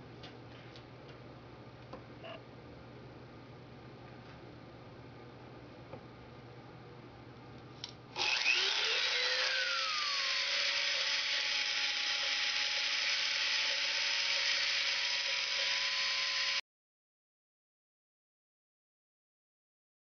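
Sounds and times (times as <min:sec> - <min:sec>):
rotary tool whining: 0:08.2 - 0:16.6.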